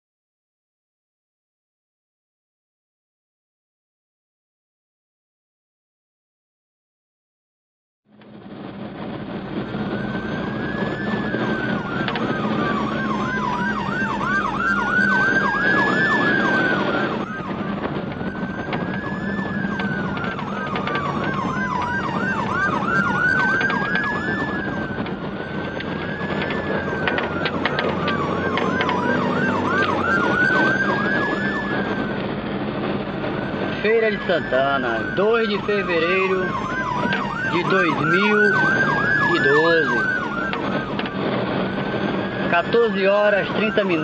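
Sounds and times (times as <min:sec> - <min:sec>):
vehicle road noise: 0:08.1 - 0:44.0
electronic siren wailing: 0:09.2 - 0:44.0.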